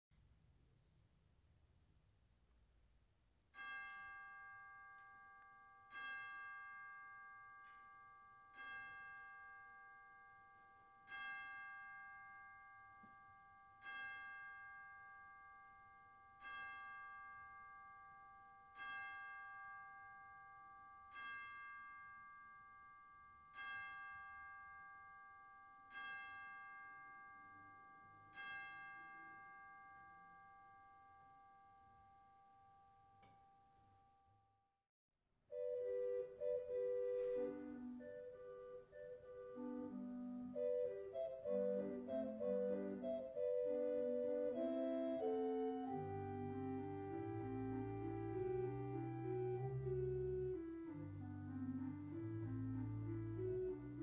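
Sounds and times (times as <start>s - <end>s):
bell strokes ringing: 3.6s - 32.1s.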